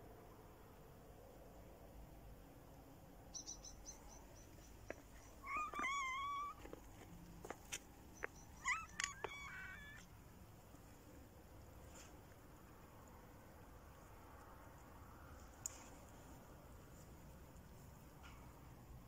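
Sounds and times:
pet animal chirping and crying: 0:05.1 - 0:06.8, 0:08.2 - 0:10.1
soft clicks: 0:08.2 - 0:09.4.

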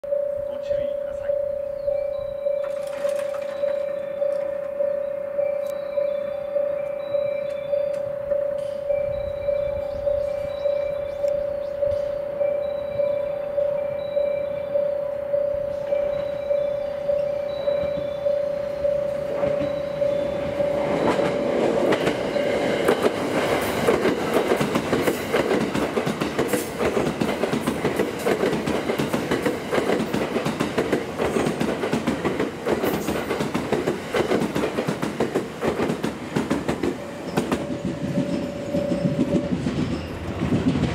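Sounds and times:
level crossing bell ringing: 0:00.0 - 0:22.9, 0:37.0 - 0:40.2
train wheels clattering: 0:02.5 - 0:04.8, 0:15.8 - 0:40.9.

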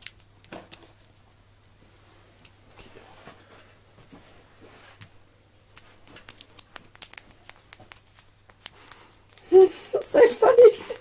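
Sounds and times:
soft rustling: 0:00.9 - 0:05.2
claws clicking on plastic basket: 0:06.0 - 0:09.5.

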